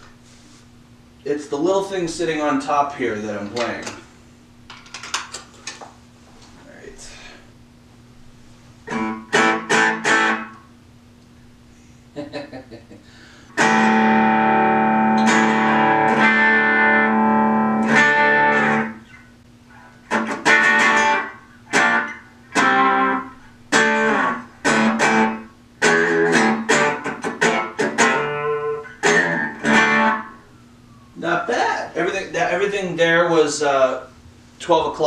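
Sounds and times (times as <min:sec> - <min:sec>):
electric guitar chords strummed: 0:08.9 - 0:10.6, 0:13.6 - 0:19.2, 0:19.8 - 0:30.5.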